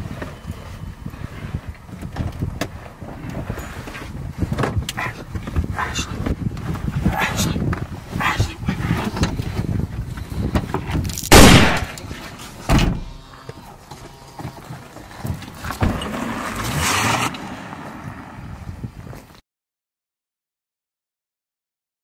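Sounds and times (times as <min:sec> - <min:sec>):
people rustling inside a car: 0:00.0 - 0:19.4
loud bang: 0:11.3 - 0:12.0
heavy thump: 0:12.6 - 0:13.2.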